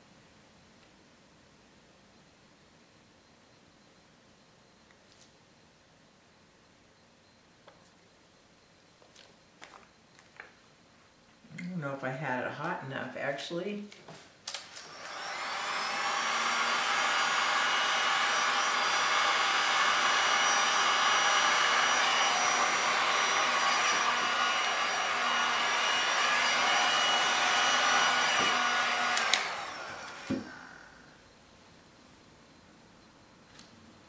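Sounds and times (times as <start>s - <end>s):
heat gun blowing whir: 14.5s - 31.2s
heat gun switch click: 29.2s - 29.5s.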